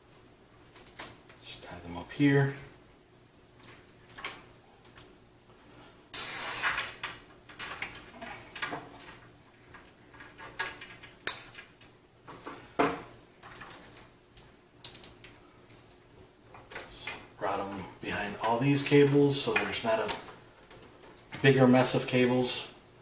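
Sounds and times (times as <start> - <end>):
cables rustling and scraping on metal case: 6.2 - 12.8.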